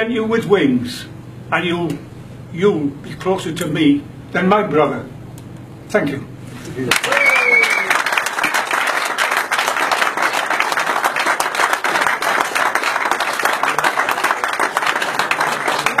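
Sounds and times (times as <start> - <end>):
audience applauding: 6.9 - 16.0.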